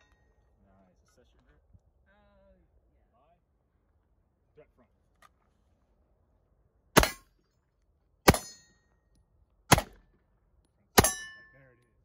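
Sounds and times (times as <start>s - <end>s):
pistol shots: 7.0s - 7.3s, 8.3s - 8.6s, 9.7s - 10.0s, 11.0s - 11.4s.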